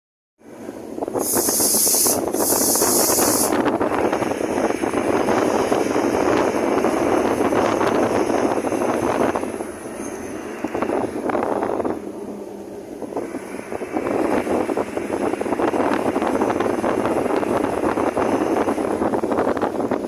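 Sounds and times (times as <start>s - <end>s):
wind and road noise in car: 0.4s - 20.0s
high hiss bursts: 1.1s - 3.7s.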